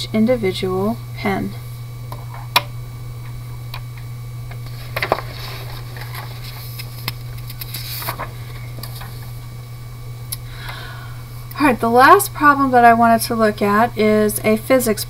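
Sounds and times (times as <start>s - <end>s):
low hum: 0.0s - 15.0s
paper rustling: 4.5s - 9.4s.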